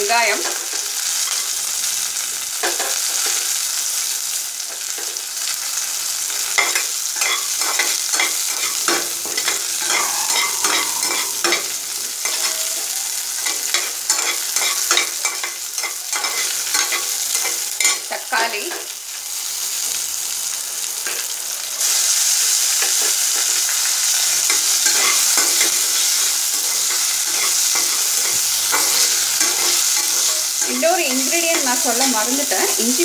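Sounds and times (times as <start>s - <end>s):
onion sizzling in hot oil: 0.0s - 33.0s
spatula scraping a pan: 6.4s - 18.1s, 21.0s - 32.8s.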